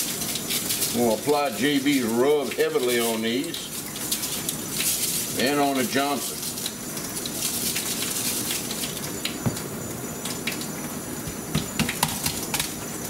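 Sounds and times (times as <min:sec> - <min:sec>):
steady hiss: 0:00.0 - 0:13.0
bottle set down on counter: 0:09.4 - 0:09.7.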